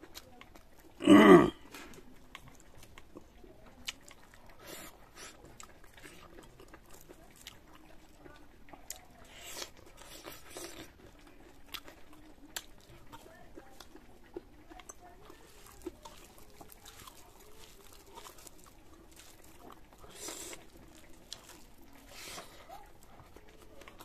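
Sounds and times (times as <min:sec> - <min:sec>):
chewing with wet mouth clicks: 0:00.0 - 0:24.0.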